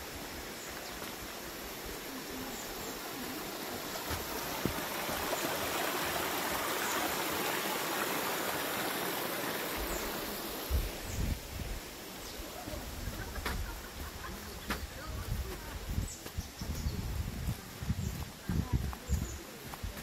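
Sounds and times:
stream trickling over stones: 0.0 - 13.0.

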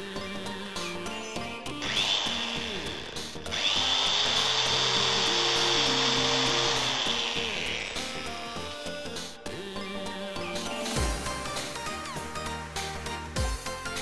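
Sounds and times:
background music: 0.0 - 14.0
angle grinder whining: 1.7 - 9.0.

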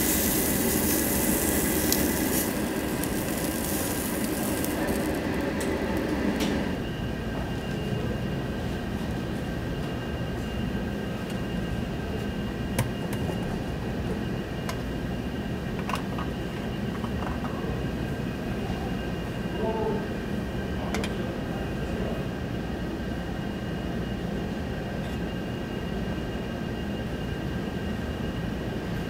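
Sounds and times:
meat sizzling on a grill: 0.0 - 6.4
restaurant background hum: 0.0 - 29.0.

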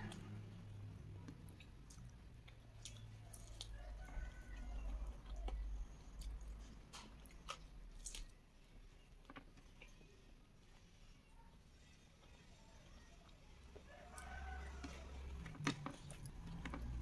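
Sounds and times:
person chewing fried chicken: 1.0 - 10.0.

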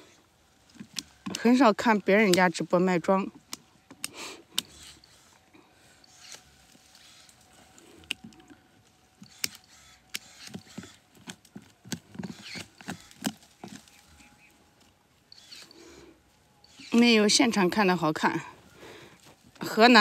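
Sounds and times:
scraping in dry soil: 0.0 - 20.0
pruning shears snipping: 0.6 - 16.0, 16.6 - 18.4.

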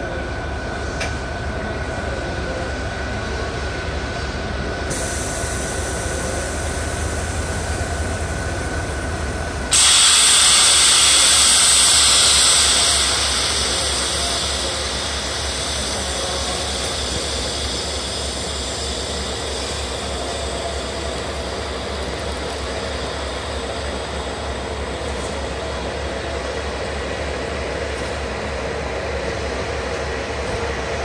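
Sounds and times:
electric locomotive humming: 0.0 - 31.0
loud air hiss: 4.9 - 26.3.

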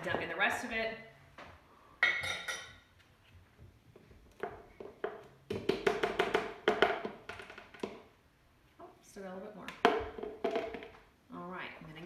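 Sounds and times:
plastic bowl knocking: 4.4 - 8.0, 9.7 - 11.0.

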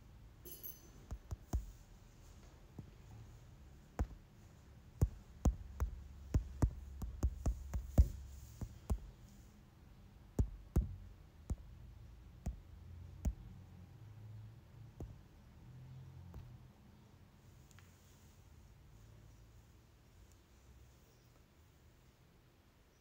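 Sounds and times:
sharp clicks and light knocks: 3.8 - 9.4.

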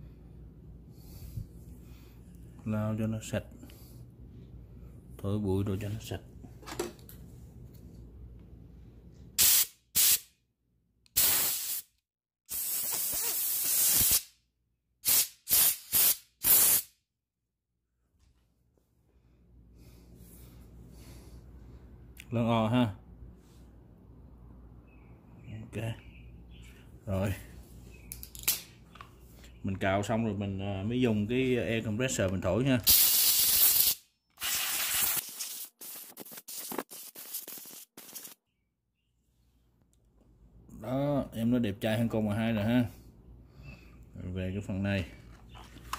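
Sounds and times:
compressed air blow gun blasts: 9.4 - 10.2, 11.2 - 11.9, 12.5 - 14.3, 15.0 - 16.9, 32.9 - 38.4.

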